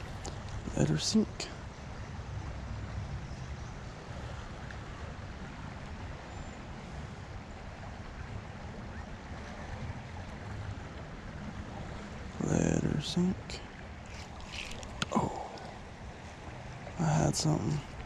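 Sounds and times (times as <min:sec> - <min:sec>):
creek flowing: 0:00.0 - 0:18.0
wind rumble on microphone: 0:01.6 - 0:12.4.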